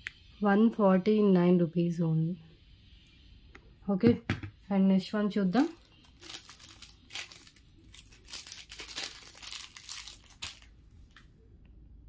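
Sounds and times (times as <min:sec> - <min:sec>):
plastic packaging crinkling: 0:05.6 - 0:10.8.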